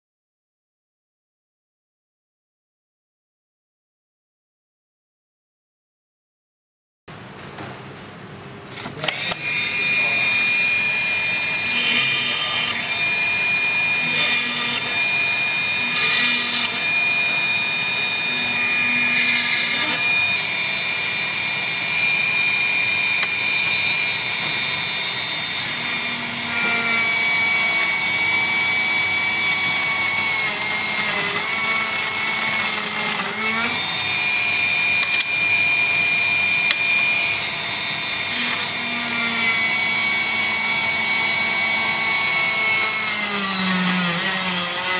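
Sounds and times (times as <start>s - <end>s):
drill motor whining: 9.0s - 44.9s.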